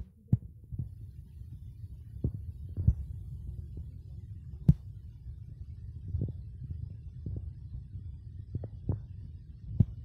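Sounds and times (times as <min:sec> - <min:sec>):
low rumble: 0:00.0 - 0:10.0
soft thumps and knocks: 0:02.2 - 0:03.1.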